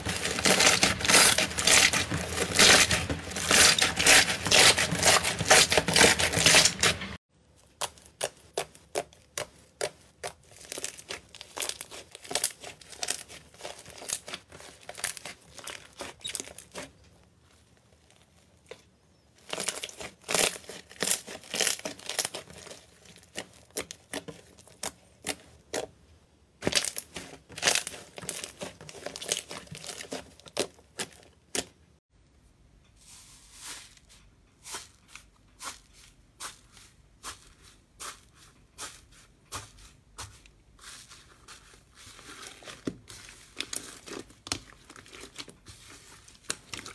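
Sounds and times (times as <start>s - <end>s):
slime crackling and popping: 0.0s - 7.1s, 10.3s - 16.9s, 19.4s - 25.4s, 26.6s - 31.6s.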